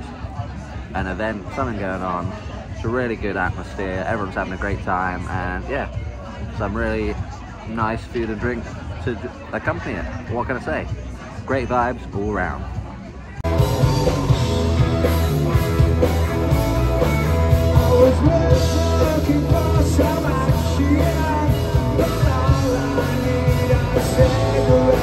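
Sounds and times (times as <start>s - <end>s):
live rock band playing: 13.4s - 25.0s
person singing: 17.3s - 25.0s.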